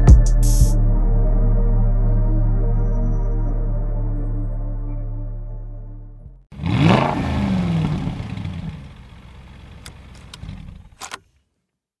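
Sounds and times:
car engine revving and idling: 0:06.5 - 0:11.2
sharp clicks: 0:09.8 - 0:11.3.

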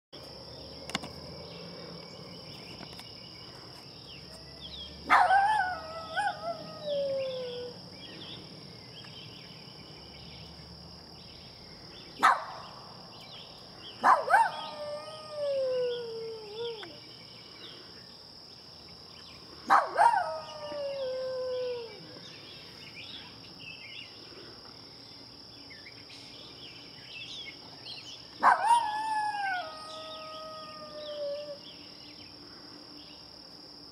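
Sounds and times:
small dog howling: 0:05.0 - 0:07.8, 0:14.0 - 0:17.0, 0:19.7 - 0:22.2, 0:28.4 - 0:31.7
dog yelp: 0:05.1 - 0:06.4.

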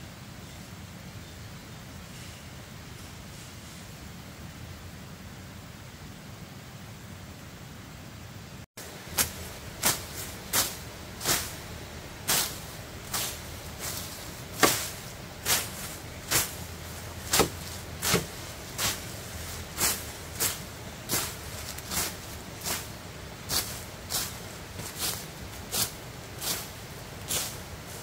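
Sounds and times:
short swishing strokes: 0:09.0 - 0:28.0.

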